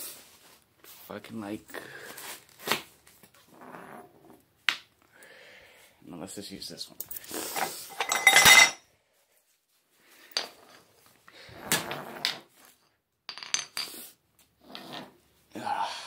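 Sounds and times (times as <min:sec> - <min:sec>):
metal tools clattering: 0:07.0 - 0:08.8
tools set down on tile floor: 0:07.6 - 0:08.8, 0:10.3 - 0:10.9, 0:13.3 - 0:14.0.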